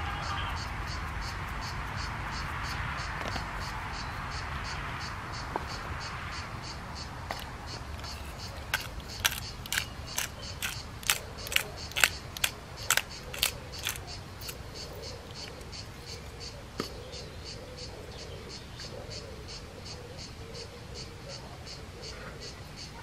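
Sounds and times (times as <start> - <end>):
insects chirping: 0.1 - 17.9
pepper mill grinding: 7.4 - 14.6.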